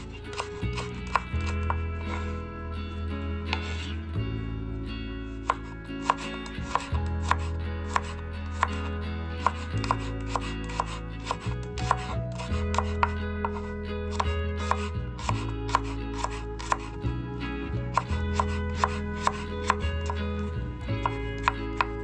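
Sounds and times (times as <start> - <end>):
background music: 0.0 - 22.0
knife striking wooden board: 5.5 - 8.8, 9.4 - 16.9.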